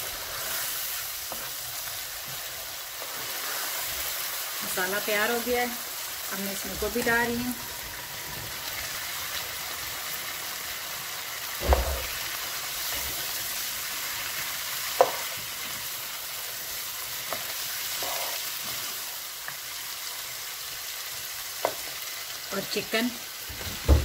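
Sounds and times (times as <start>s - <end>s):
vegetables sizzling in a frying pan: 0.0s - 24.0s
sharp knocks: 11.6s - 12.1s.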